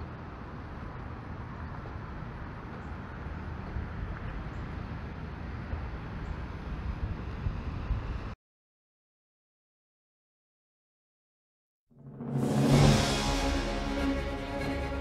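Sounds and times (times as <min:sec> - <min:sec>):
vehicle road and wind noise: 0:00.0 - 0:08.4.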